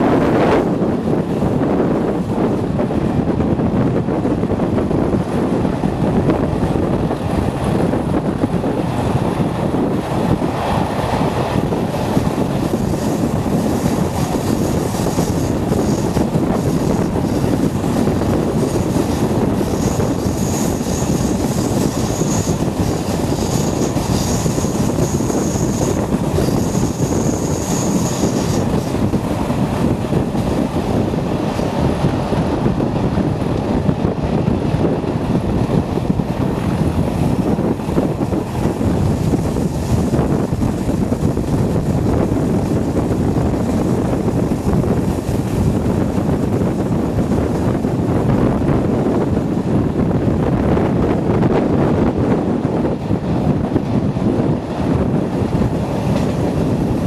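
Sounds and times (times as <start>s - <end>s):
diesel locomotive engine under power: 0.0s - 57.0s
wheels running on rails: 0.0s - 57.0s
high wheel squeal: 19.6s - 28.8s.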